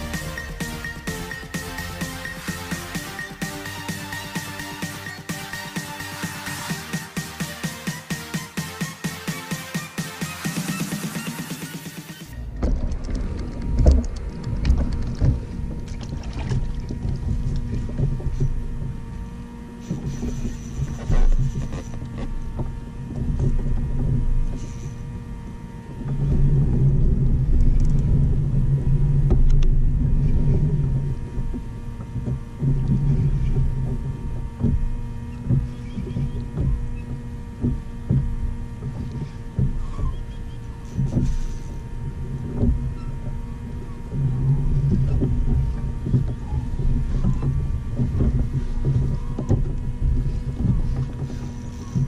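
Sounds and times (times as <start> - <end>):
faint hum: 12.3 - 52.0
wind rumbling on microphone: 12.3 - 52.0
water lapping at hull: 12.4 - 52.0.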